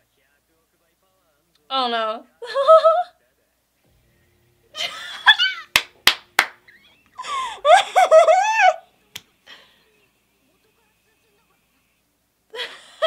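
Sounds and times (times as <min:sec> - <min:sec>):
woman laughing and squealing: 0:02.4 - 0:03.1, 0:06.7 - 0:08.9.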